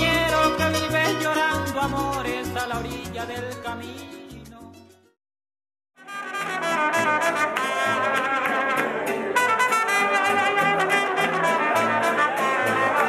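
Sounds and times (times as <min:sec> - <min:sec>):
bass line: 0:00.0 - 0:04.7
strummed guitar: 0:00.0 - 0:05.0, 0:06.0 - 0:13.0
trumpets playing melody: 0:06.0 - 0:13.0.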